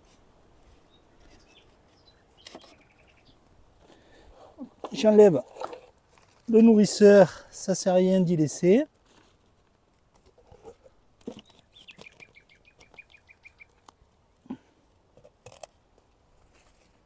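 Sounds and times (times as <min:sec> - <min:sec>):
bird trilling: 0:11.6 - 0:13.8.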